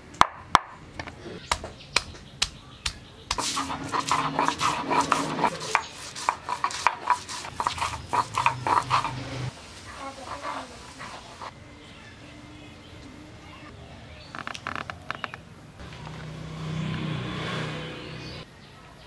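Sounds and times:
stone pounding on a slab: 1.5s - 9.1s
stone rasping on grinding slab: 3.4s - 9.5s.

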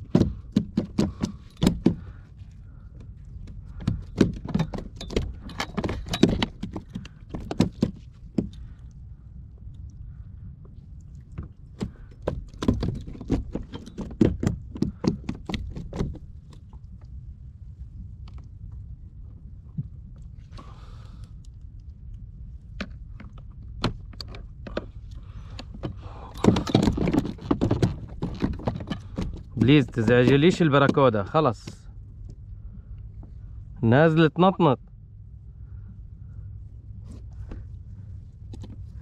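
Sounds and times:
fish thrashing on plastic kayak: 0.0s - 9.0s, 11.2s - 16.8s, 22.7s - 31.0s
light metallic rattle: 0.0s - 9.0s.

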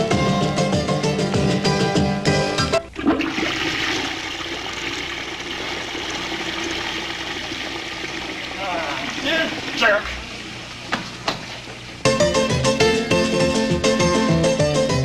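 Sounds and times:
music with rhythmic beat: 0.0s - 2.8s, 12.0s - 15.0s
toilet flushing: 2.8s - 12.0s.

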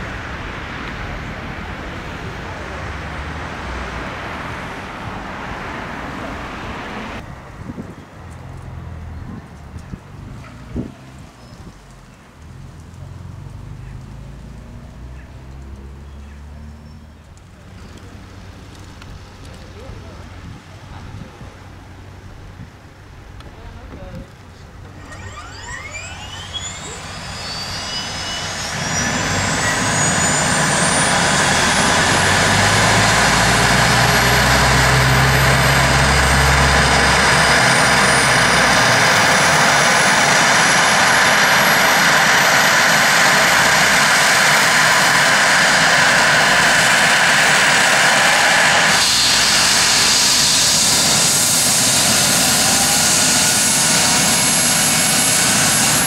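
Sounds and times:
helicopter engines and rotor running: 23.8s - 56.0s.

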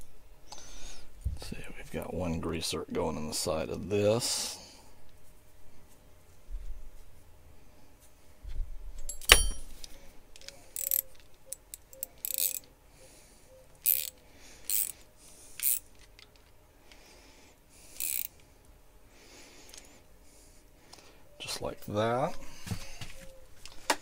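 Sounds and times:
metallic clink: 9.1s - 9.8s.

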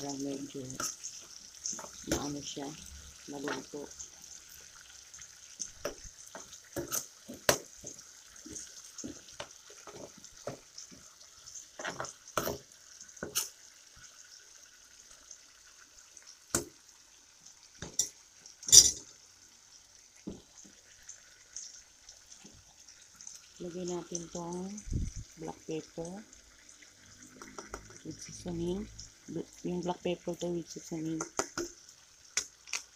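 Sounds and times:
metal utensil scraping pan: 0.0s - 2.6s, 5.6s - 13.6s, 17.9s - 19.1s
food sizzling in hot oil: 0.0s - 32.9s.

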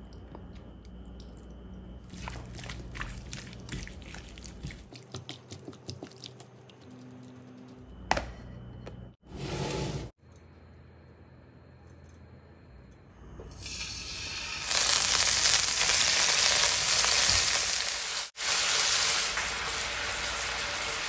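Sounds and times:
hand squelching raw chicken: 2.1s - 7.1s.

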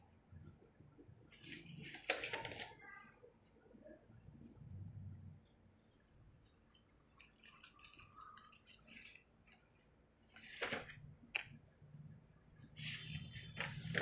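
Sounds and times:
paper pages rustling: 1.3s - 2.8s, 6.8s - 11.6s, 12.6s - 14.0s.

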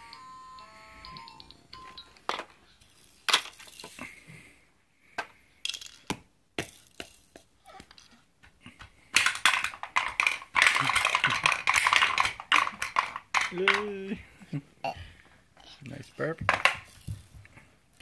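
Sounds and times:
plastic toys knocking: 8.8s - 14.2s, 16.4s - 17.6s.

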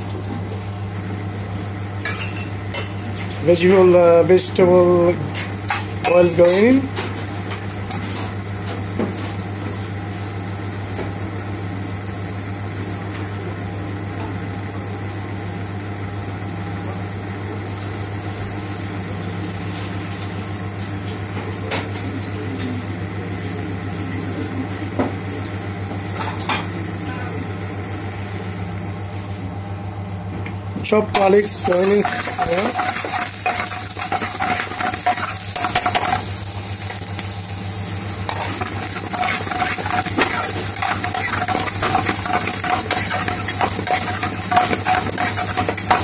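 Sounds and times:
low hum from hob: 0.0s - 46.0s
oil hissing in a frying pan: 31.1s - 46.0s.

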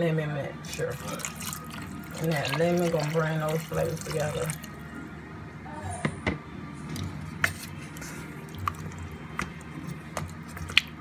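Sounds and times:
spoon stirring thick sauce: 0.6s - 4.9s, 7.0s - 11.0s.

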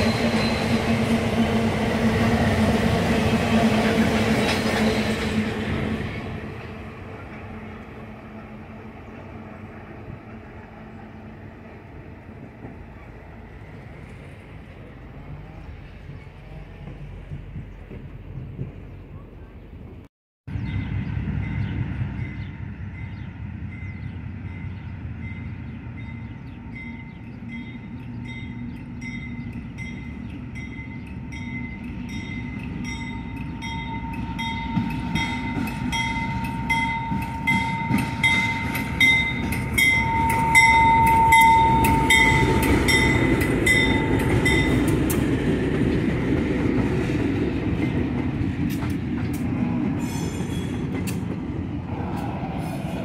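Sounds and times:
crossing bell ding: 21.5s - 45.1s
wheels clicking over rail joints: 27.1s - 51.6s.

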